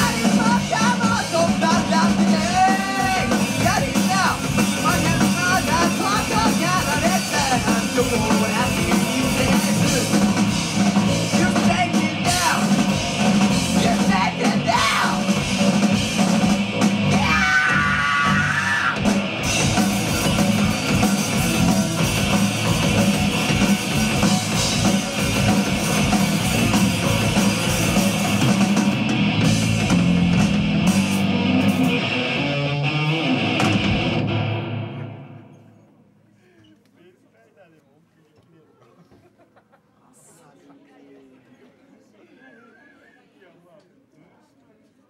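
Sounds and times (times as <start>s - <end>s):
lead vocalist singing: 0.0s - 10.5s, 13.7s - 15.4s
drum kit: 0.0s - 35.4s
bass guitar: 0.0s - 35.6s
electric guitar: 0.0s - 35.8s.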